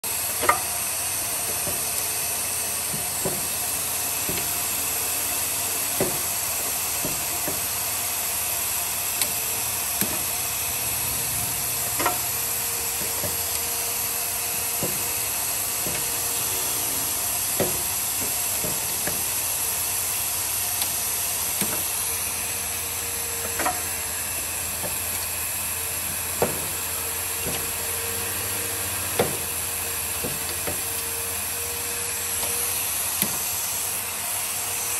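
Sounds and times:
machine hiss and hum: 0.0 - 34.9
pneumatic machine clicks and clacks: 0.1 - 34.9.

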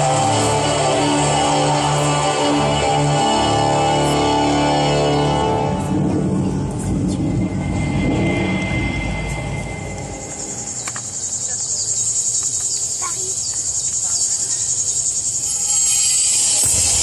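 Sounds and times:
crickets chirring: 7.5 - 17.0.

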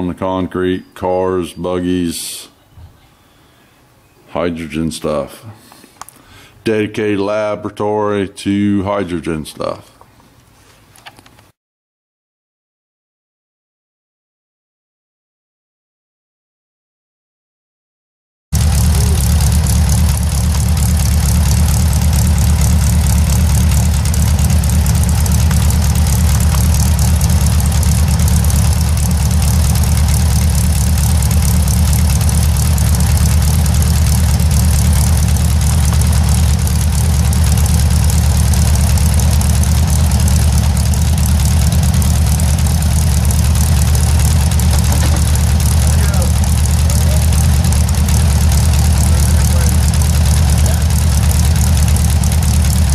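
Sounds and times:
air-cooled engine idling: 18.6 - 52.9.

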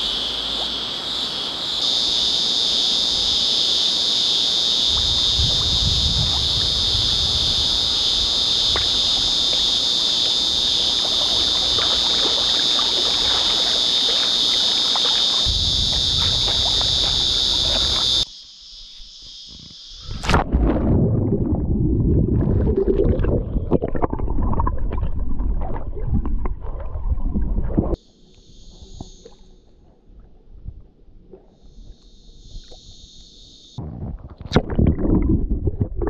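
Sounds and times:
cicadas buzzing: 0.0 - 20.4, 27.9 - 30.0, 31.5 - 33.8
water splashing from swimmers: 8.4 - 18.2.

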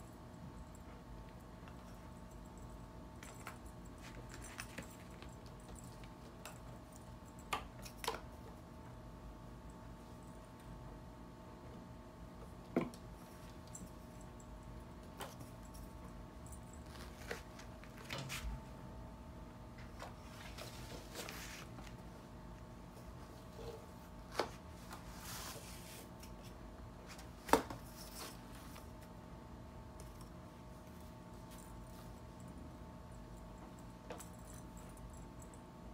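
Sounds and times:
faint steady hum: 0.0 - 35.9
soft rustles: 19.8 - 22.2, 23.0 - 29.2.

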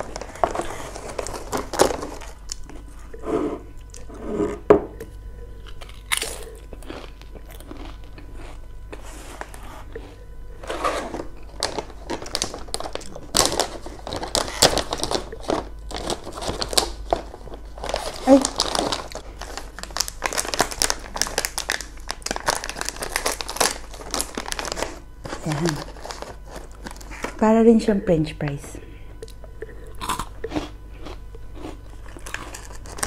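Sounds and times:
crunchy snacks being chewed: 5.1 - 27.4, 29.2 - 33.0.

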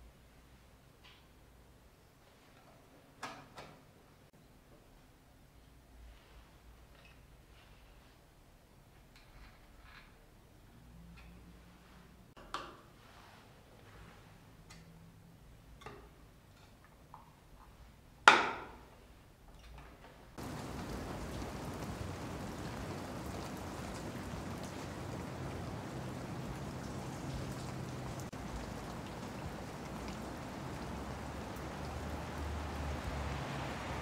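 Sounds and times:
rain falling: 20.4 - 34.0.

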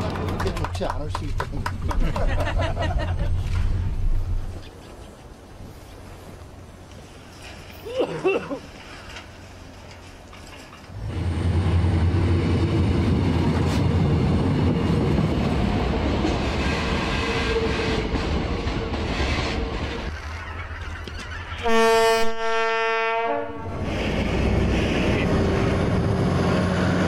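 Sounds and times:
train wheels rumbling on rails: 0.0 - 5.0, 6.0 - 21.7, 23.6 - 27.0
train horn blast: 16.7 - 18.1, 21.6 - 25.5.

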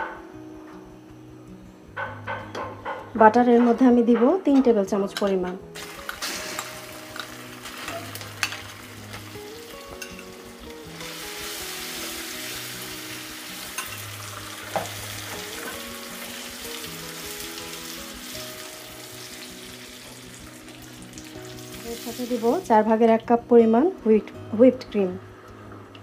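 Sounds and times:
soft background music: 0.0 - 26.0
butter sizzling in caramel: 5.8 - 23.1.

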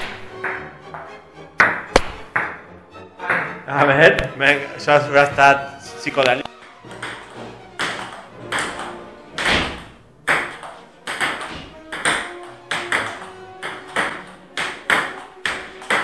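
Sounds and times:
table tennis ball clicking: 6.2 - 9.0, 10.3 - 16.0.

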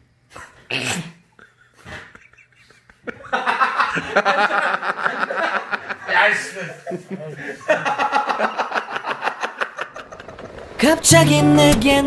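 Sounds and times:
men laughing: 1.4 - 10.7.

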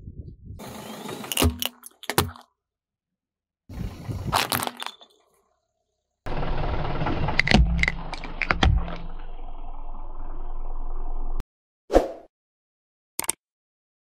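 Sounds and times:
car noise: 6.3 - 11.4.

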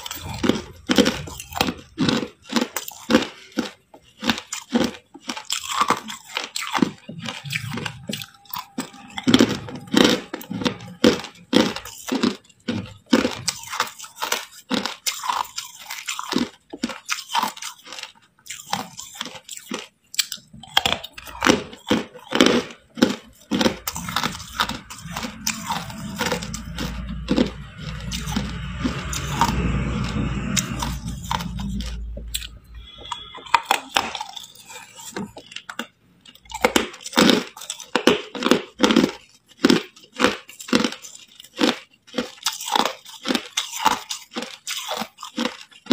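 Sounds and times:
ice crunching between teeth: 0.0 - 45.9.

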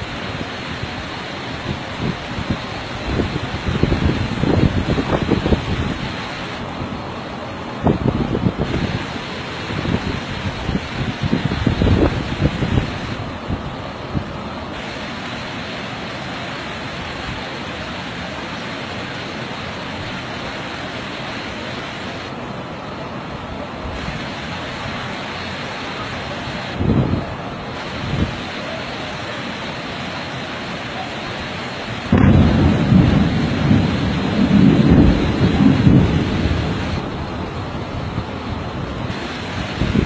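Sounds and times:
storm rushing noise: 0.0 - 28.8, 31.9 - 40.0
wind thumps on microphone: 1.7 - 6.6, 7.8 - 15.0, 32.1 - 38.3, 39.0 - 40.0.

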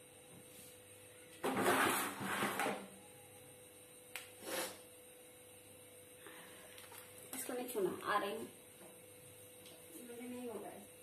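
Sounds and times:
woman's breathy nasal sounds: 4.4 - 4.8.

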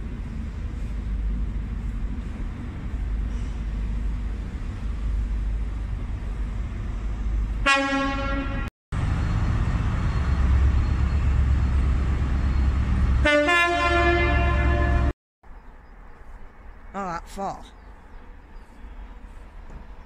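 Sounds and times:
train horn blast: 7.6 - 8.7, 13.2 - 15.2
two-tone train horn: 7.6 - 8.7, 13.2 - 15.2
diesel engine rumble: 8.9 - 13.4.

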